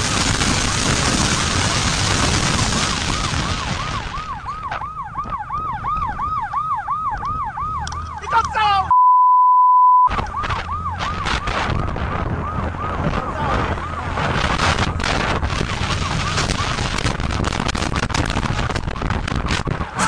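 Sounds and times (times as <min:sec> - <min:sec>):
police siren yelping: 0:00.0 - 0:09.0, 0:10.0 - 0:17.1
loud steady beep: 0:08.9 - 0:10.1
heavy wind: 0:10.1 - 0:20.0.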